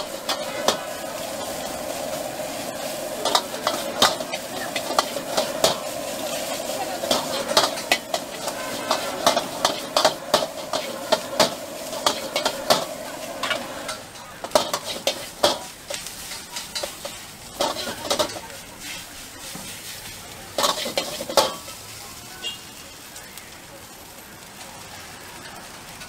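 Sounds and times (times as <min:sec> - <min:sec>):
metal ladle scraping a wok: 0:00.0 - 0:21.8
rice sizzling in a wok: 0:00.0 - 0:26.0.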